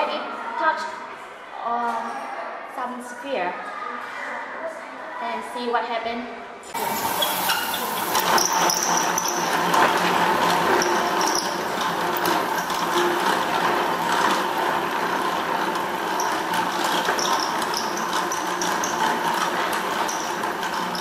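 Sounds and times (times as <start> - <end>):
machine whirring: 6.8 - 21.0.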